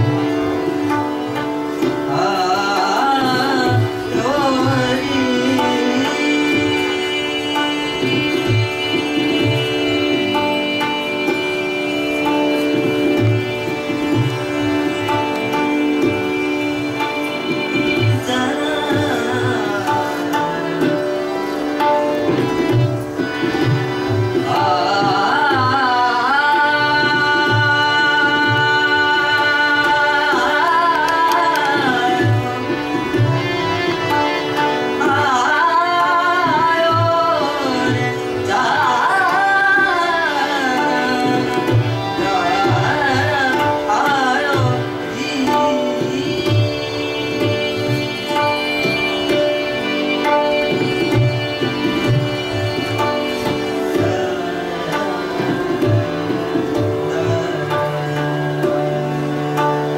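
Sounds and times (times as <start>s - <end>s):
keyboard sustained notes: 0.0s - 59.9s
person singing ornamented phrases: 57.0s - 58.6s.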